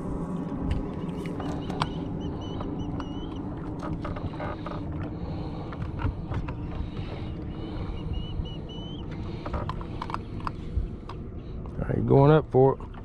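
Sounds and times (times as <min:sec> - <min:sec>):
light handling clicks and knocks: 0:09.1 - 0:11.2.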